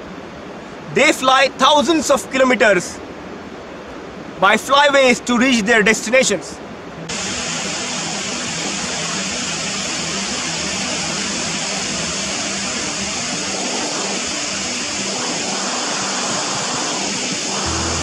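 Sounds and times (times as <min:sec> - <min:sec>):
surf breaking on shore: 0:07.1 - 0:18.0.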